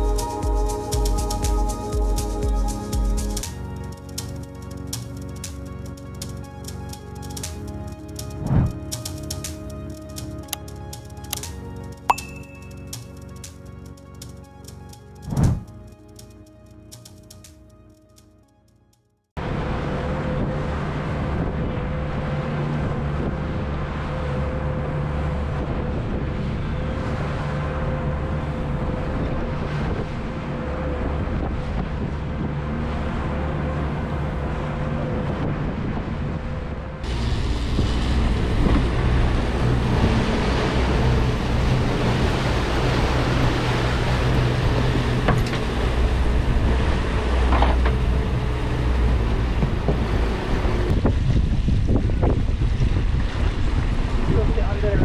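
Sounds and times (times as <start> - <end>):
water noise: 0.0 - 17.4, 19.4 - 55.0
boat engine running: 19.4 - 55.0
wind buffeting microphone: 28.2 - 33.4, 34.0 - 55.0.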